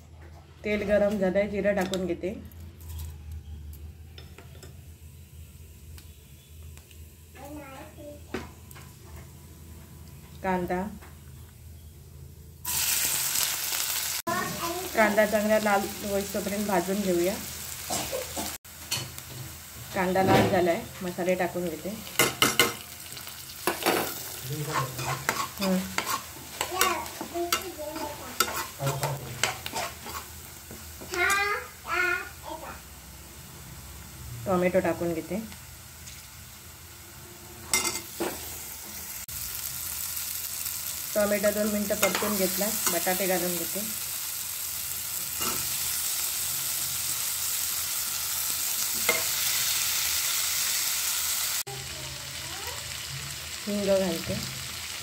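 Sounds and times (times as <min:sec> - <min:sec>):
onions sizzling in oil: 0:04.5 - 0:11.9, 0:12.5 - 0:55.0
spoon scraping and knocking pan: 0:22.1 - 0:22.9, 0:23.6 - 0:31.2, 0:37.7 - 0:39.0, 0:41.9 - 0:43.4, 0:48.9 - 0:49.4.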